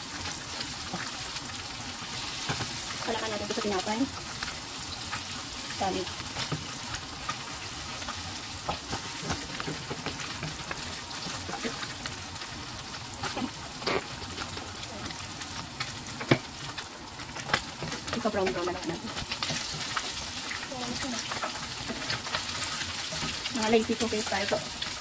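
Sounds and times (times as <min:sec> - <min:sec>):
eggs sizzling in hot oil: 0:00.0 - 0:25.0
spatula scraping and tapping pan: 0:06.3 - 0:11.9, 0:17.4 - 0:20.2.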